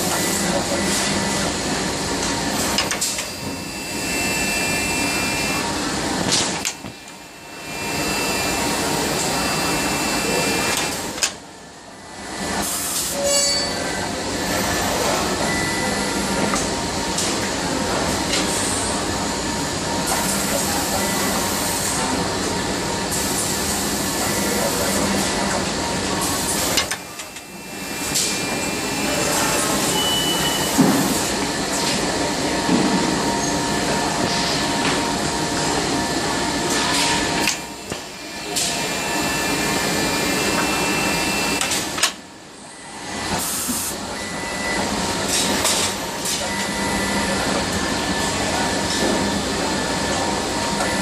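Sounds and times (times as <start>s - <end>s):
faint machine whines: 2.9s - 11.1s, 37.0s - 41.8s.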